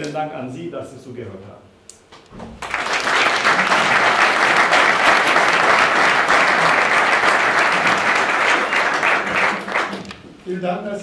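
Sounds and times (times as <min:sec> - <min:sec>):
audience applauding: 0:02.5 - 0:10.2.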